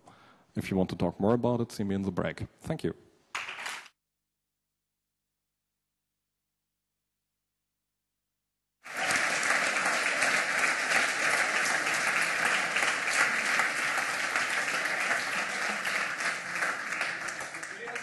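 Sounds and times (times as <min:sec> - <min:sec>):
audience applause: 0:08.8 - 0:18.0.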